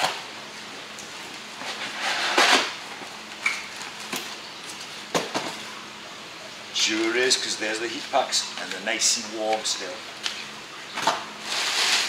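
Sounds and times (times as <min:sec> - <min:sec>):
cardboard rustling scrape: 0:11.4 - 0:12.0.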